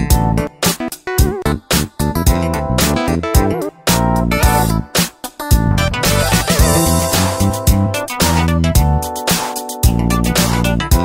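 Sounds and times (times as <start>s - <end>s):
guitar instrumental with beat: 0.0s - 11.0s.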